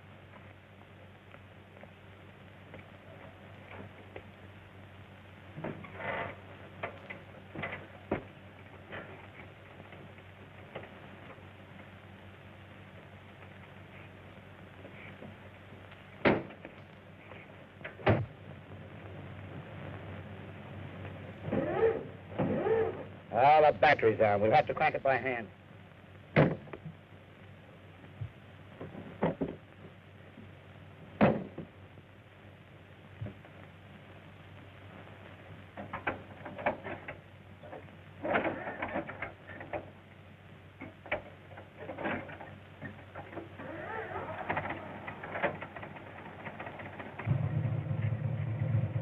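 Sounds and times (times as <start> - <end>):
steady hiss: 0.0 - 49.0
soundtrack hum: 45.9 - 49.0.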